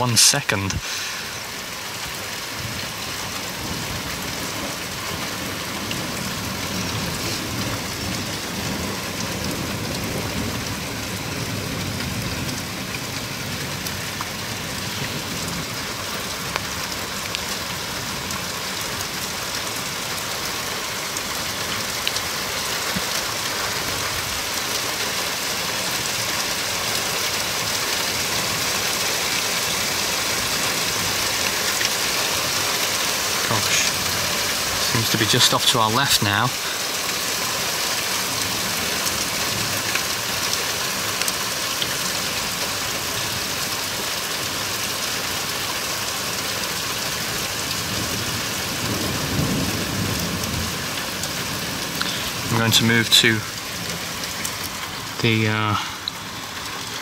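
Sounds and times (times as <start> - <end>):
heavy rain pouring: 0.0 - 57.0.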